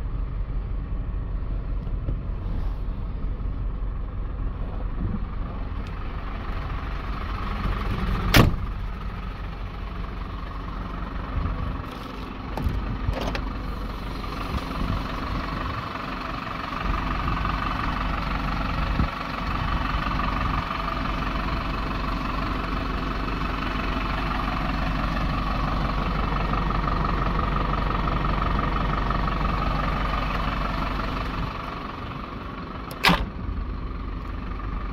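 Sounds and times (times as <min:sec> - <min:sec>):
diesel truck idling: 0:00.0 - 0:34.9.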